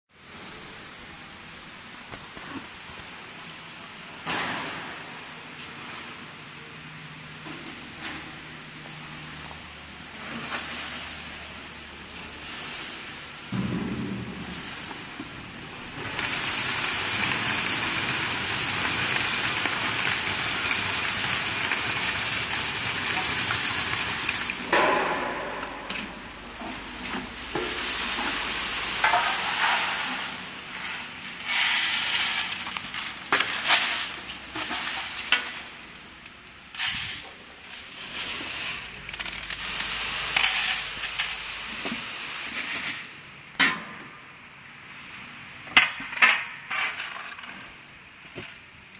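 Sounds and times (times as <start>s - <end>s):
sorting machine hissing: 9.0s - 13.6s, 14.3s - 25.1s, 26.2s - 35.8s, 36.8s - 43.3s
dry beans rattling into containers: 15.8s - 24.7s, 26.3s - 36.2s, 36.8s - 41.6s.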